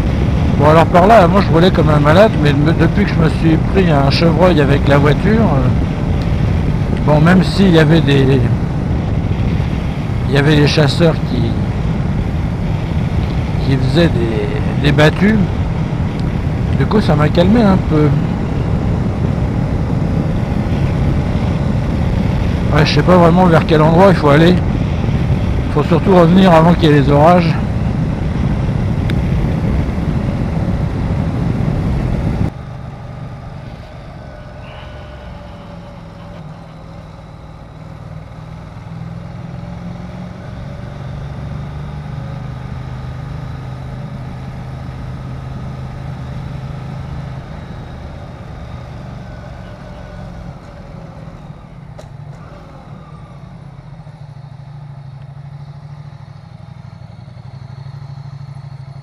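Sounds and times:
wind buffeting microphone: 0:00.0 - 0:01.3, 0:05.2 - 0:07.6, 0:08.4 - 0:10.3, 0:17.6 - 0:22.7, 0:24.5 - 0:25.8, 0:27.5 - 0:32.6
motorcycle engine running: 0:00.0 - 0:59.0.

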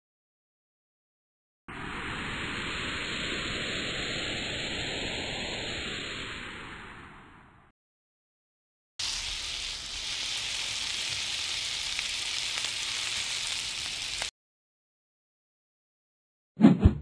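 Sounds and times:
swept hissing whoosh: 0:01.8 - 0:07.2, 0:09.0 - 0:14.3
sizzling hiss: 0:09.0 - 0:14.3.

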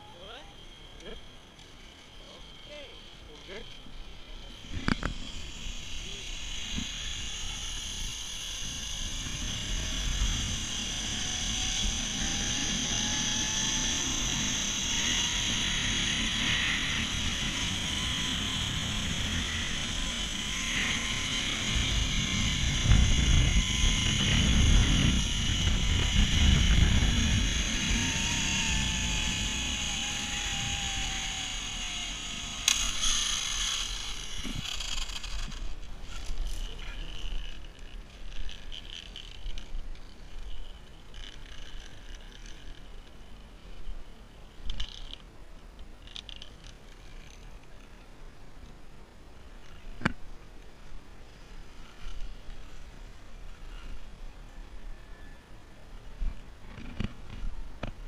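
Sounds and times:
zipline pulleys whirring on cable: 0:00.0 - 0:48.0, 0:49.2 - 0:58.0
wind rumble on microphone: 0:04.6 - 0:32.5.

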